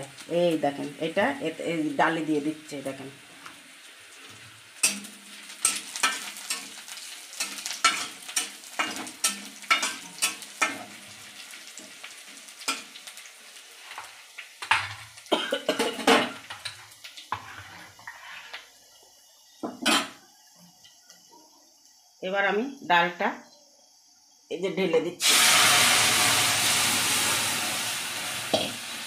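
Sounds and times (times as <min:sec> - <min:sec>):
onions frying in oil: 0:00.0 - 0:29.0
spatula scraping a metal wok: 0:16.6 - 0:18.7.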